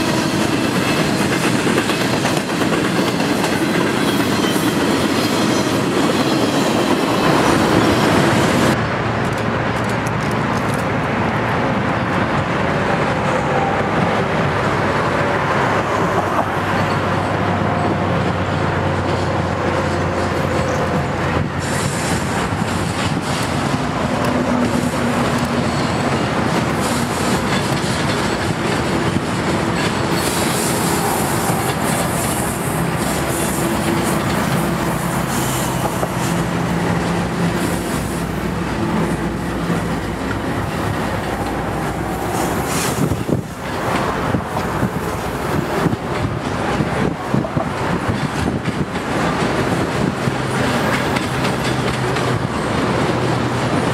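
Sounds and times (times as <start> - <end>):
diesel locomotive engines droning: 0.0 - 53.9
train wheels clattering over rail joints: 18.3 - 53.9.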